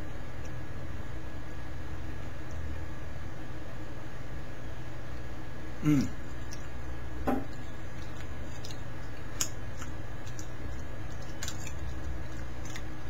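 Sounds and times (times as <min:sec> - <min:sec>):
steady low hum: 0:00.0 - 0:13.0
person murmuring: 0:05.8 - 0:06.2.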